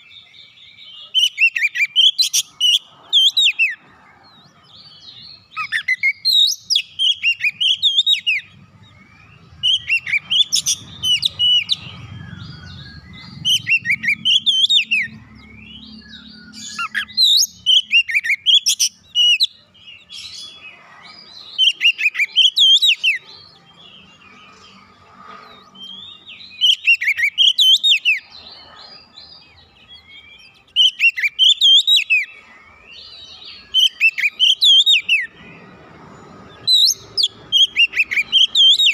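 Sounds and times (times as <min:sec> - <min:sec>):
bird singing whistled phrases: 0:05.6 - 0:19.6, 0:25.8 - 0:28.2, 0:29.9 - 0:32.4, 0:33.1 - 0:35.3, 0:36.6 - 0:38.9.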